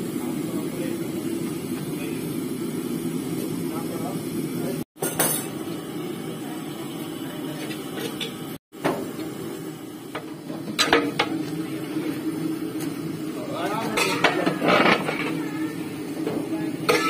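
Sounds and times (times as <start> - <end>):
metal ladle scraping cooking pot: 13.9 - 15.4.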